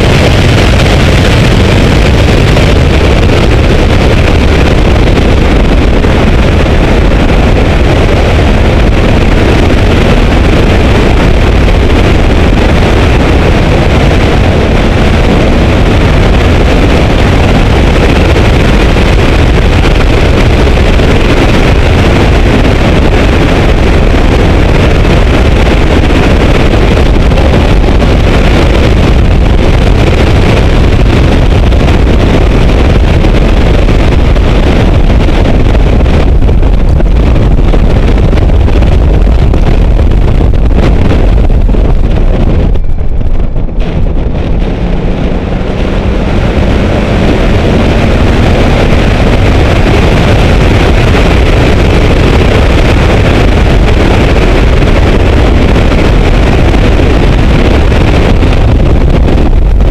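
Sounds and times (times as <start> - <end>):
loud wind rush: 0.0 - 59.9
car engine under load: 42.4 - 48.6.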